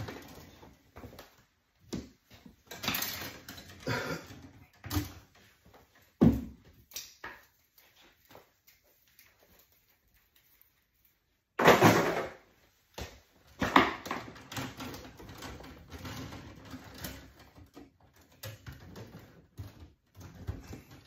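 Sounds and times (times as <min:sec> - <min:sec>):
cables rustling: 0:00.0 - 0:11.6.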